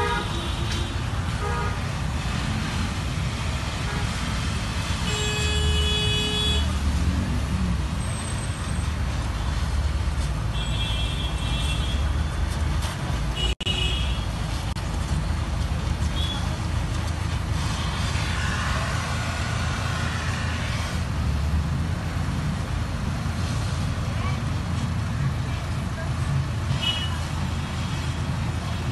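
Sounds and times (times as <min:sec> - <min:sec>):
vehicle horn toots: 0:00.0 - 0:01.8, 0:05.0 - 0:06.7
street traffic rumble: 0:00.0 - 0:28.9.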